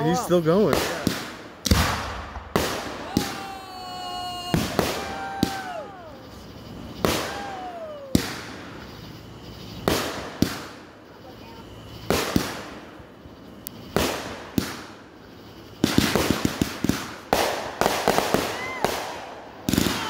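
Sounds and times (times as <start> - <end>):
fireworks bangs: 0.1 - 13.1, 13.8 - 20.0
firework whistle sliding down: 2.8 - 9.8.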